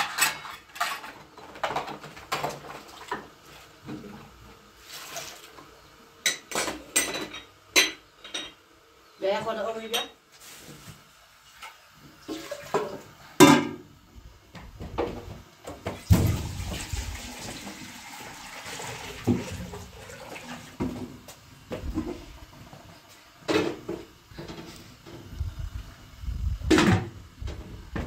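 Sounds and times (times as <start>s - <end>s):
water pouring: 16.0s - 20.8s.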